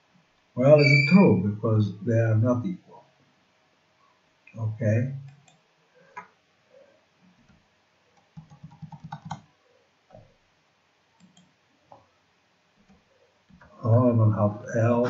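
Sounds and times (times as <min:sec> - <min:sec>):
computer keyboard keystrokes: 0:08.3 - 0:09.4.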